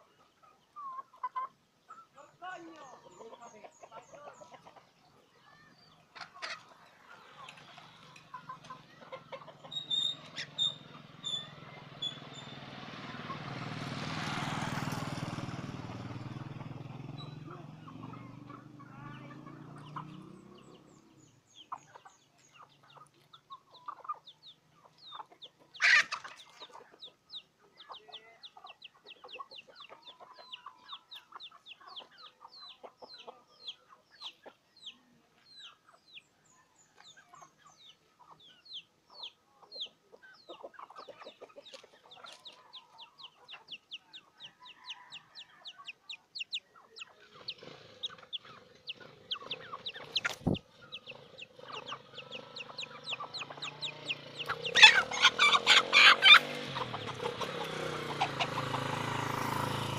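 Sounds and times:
chickens clucking: 0:00.0 - 0:59.9.

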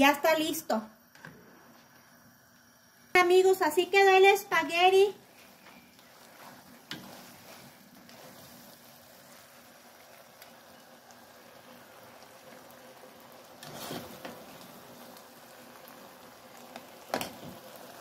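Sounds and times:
spaghetti sizzling in a pan: 0:02.0 - 0:18.0
scrape in a pan: 0:06.3 - 0:08.8, 0:13.6 - 0:14.4.

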